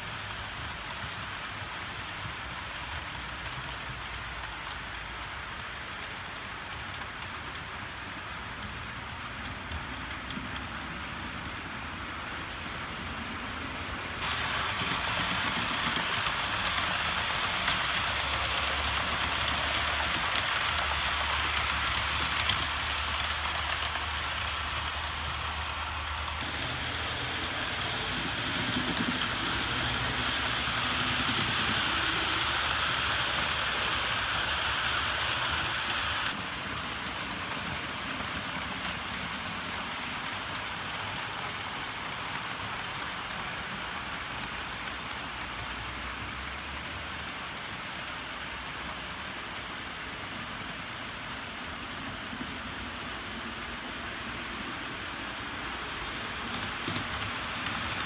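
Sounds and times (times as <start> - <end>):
model train wheels and motors: 0.0 - 58.0.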